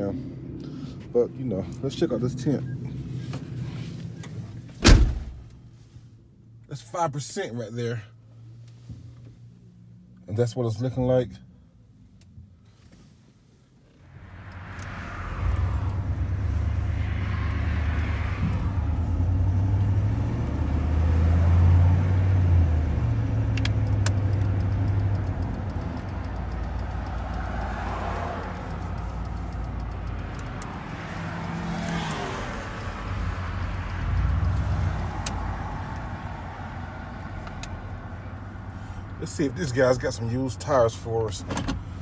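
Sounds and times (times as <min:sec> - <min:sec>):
pickup engine from inside cab: 0:12.1 - 0:42.0.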